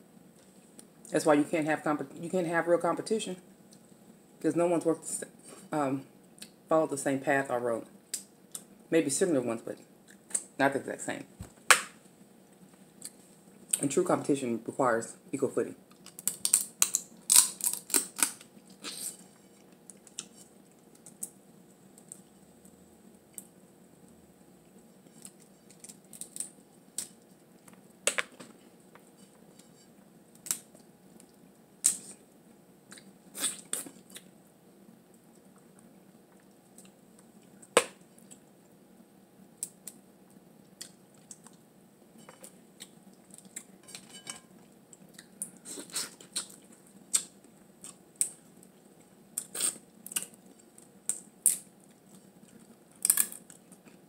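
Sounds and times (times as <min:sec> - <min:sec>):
faint room hum: 0:00.0 - 0:54.0
crab shell cracking: 0:15.9 - 0:18.9, 0:25.2 - 0:28.4, 0:30.3 - 0:32.1, 0:53.0 - 0:53.9.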